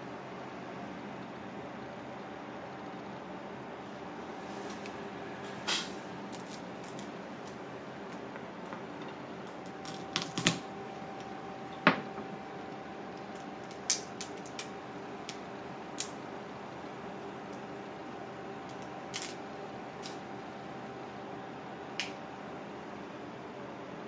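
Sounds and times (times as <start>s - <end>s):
steady background hum: 0.0s - 24.0s
crab shell cracking: 6.3s - 10.6s, 13.1s - 16.2s, 18.7s - 19.4s.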